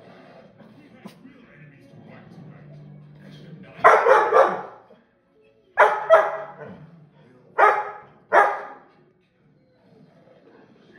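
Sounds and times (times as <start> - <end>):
dog barking: 3.8 - 4.9, 5.8 - 6.8, 7.6 - 8.9.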